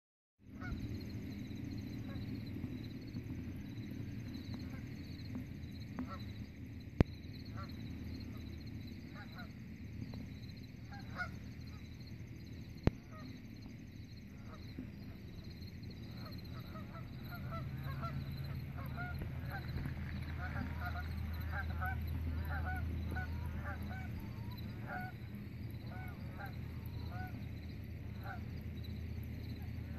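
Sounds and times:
low rumble: 0.5s - 29.9s
geese honking: 1.9s - 2.9s, 7.3s - 9.7s, 10.7s - 12.3s, 14.3s - 29.9s.

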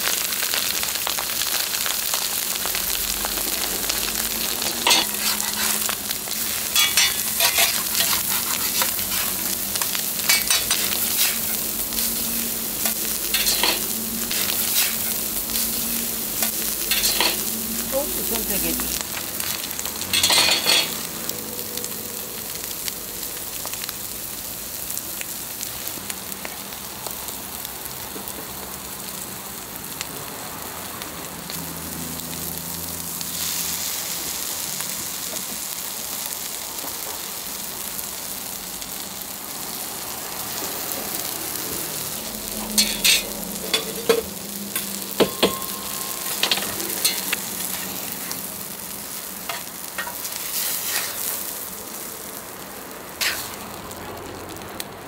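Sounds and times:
food sizzling on a griddle: 0.0s - 55.0s
metal spatula clacking on griddle: 6.7s - 9.2s, 9.8s - 11.4s, 20.1s - 21.0s, 42.8s - 47.8s, 49.5s - 50.2s.

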